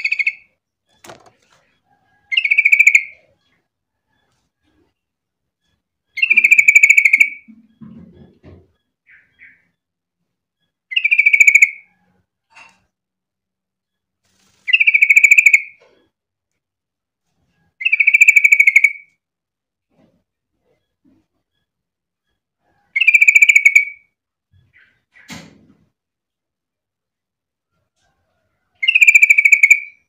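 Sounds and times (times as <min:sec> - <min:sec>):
bird chattering calls: 0:14.7 - 0:15.8.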